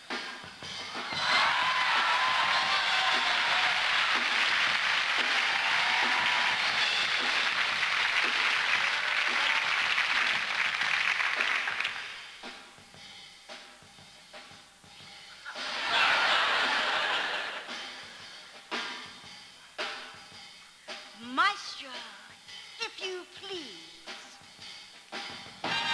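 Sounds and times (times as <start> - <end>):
audience applauding: 0.9 - 12.4, 15.6 - 17.7, 25.7 - 25.9.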